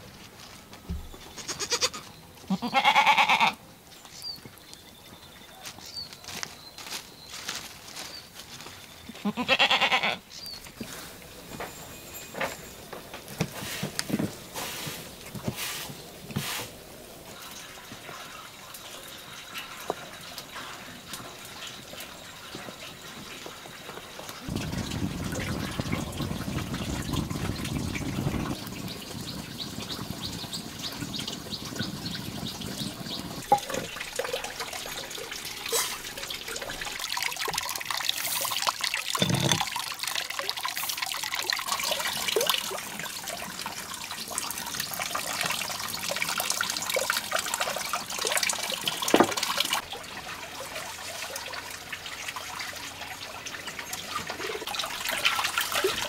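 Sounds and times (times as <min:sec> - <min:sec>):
water trickling and splashing: 0:00.0 - 0:56.0
sharp knocks and clinks: 0:11.4 - 0:14.1, 0:39.1 - 0:39.7.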